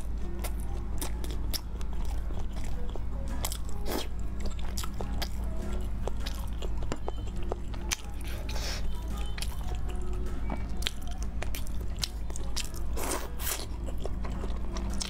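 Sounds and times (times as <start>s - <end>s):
background music: 0.0s - 15.0s
person chewing crunchy food: 0.0s - 15.0s.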